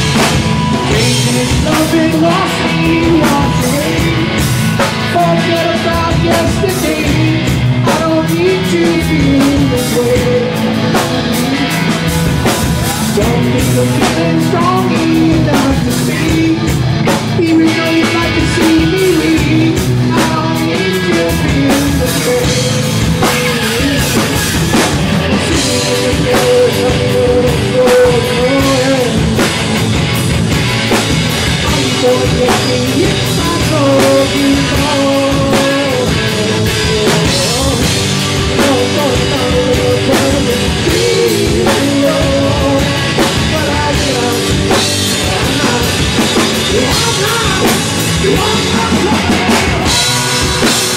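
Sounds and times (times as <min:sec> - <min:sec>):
person singing: 0:00.0 - 0:30.1, 0:30.9 - 0:50.9
bass guitar: 0:00.0 - 0:50.9
drum kit: 0:00.0 - 0:50.9
electric guitars: 0:00.0 - 0:50.9.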